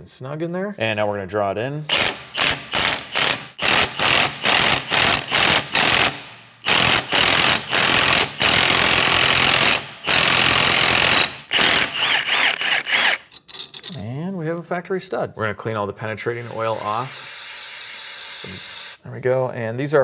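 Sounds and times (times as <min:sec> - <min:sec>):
impact wrench hammering: 0:01.9 - 0:13.8.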